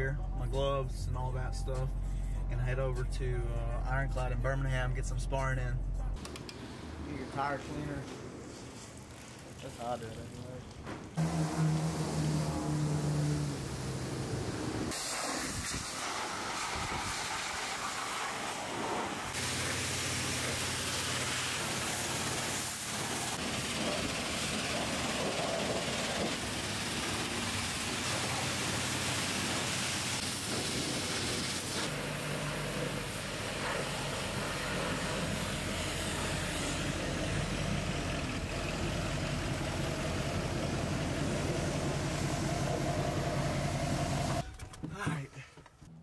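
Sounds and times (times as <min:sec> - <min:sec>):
pump motor hum: 0:11.2 - 0:15.2, 0:15.9 - 0:44.5
high-pressure water hissing: 0:11.2 - 0:44.4.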